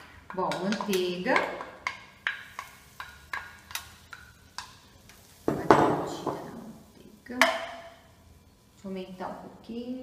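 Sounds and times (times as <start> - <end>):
butter crackling in frying pan: 0.0 - 6.2.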